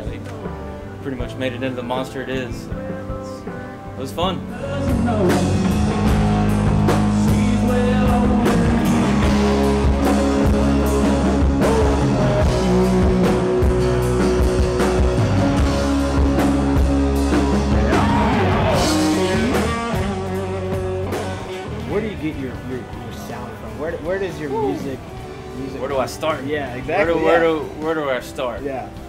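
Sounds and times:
country-rock band playing: 0:00.0 - 0:29.0.

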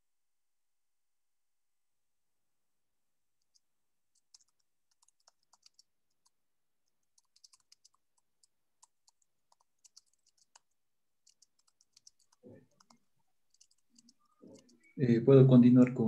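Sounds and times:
keyboard typing: 0:03.4 - 0:15.0.

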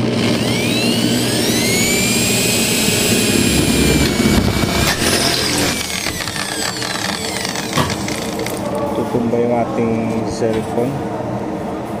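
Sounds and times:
electric drill whining: 0:00.0 - 0:08.7
drill click: 0:00.1 - 0:08.7.

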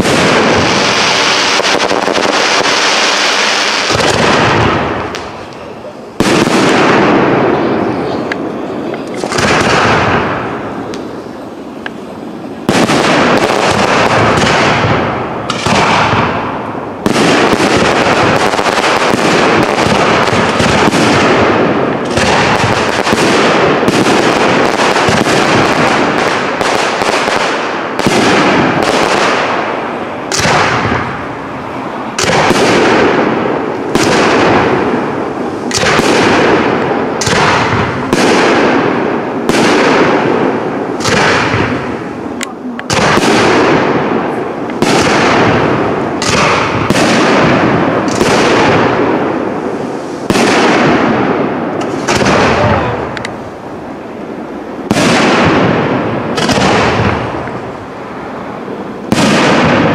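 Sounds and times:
fireworks bangs with echoes: 0:00.0 - 0:59.9.

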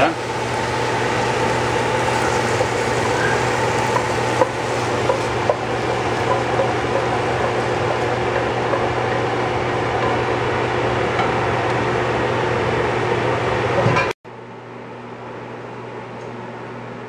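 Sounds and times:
exhaust fan whirring: 0:00.0 - 0:17.0.

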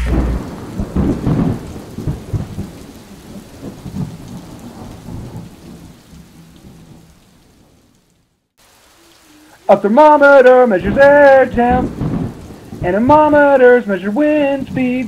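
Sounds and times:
rolling thunder: 0:00.0 - 0:07.0, 0:10.8 - 0:13.6.

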